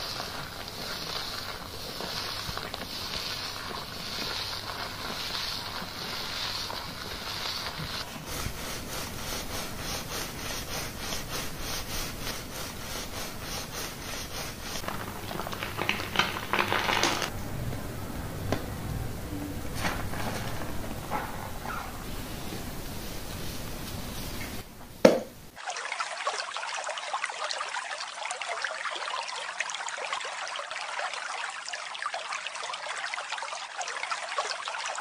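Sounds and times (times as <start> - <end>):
fingers scrubbing lathered scalp: 0.0 - 17.3.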